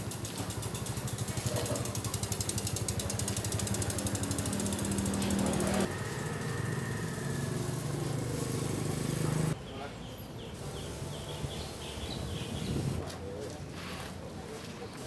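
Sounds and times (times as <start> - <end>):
bicycle freewheel ticking: 0.0 - 8.0.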